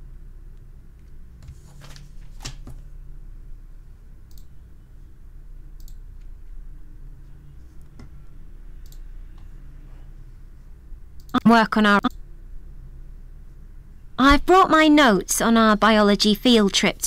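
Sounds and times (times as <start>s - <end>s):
steady low hum: 0.0s - 17.0s
soft clicks: 4.2s - 4.5s, 5.8s - 6.4s, 7.8s - 9.5s.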